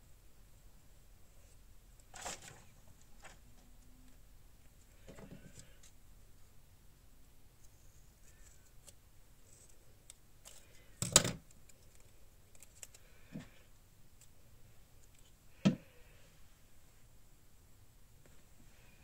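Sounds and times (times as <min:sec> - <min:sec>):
paper rustling: 0:02.1 - 0:03.5.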